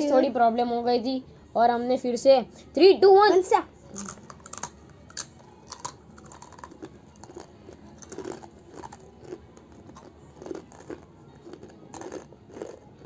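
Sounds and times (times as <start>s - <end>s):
children crunching snack sticks: 3.9s - 13.0s.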